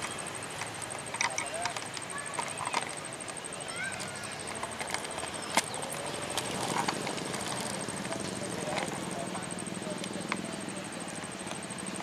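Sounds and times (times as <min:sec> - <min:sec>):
sharp clicks: 0:00.0 - 0:03.4.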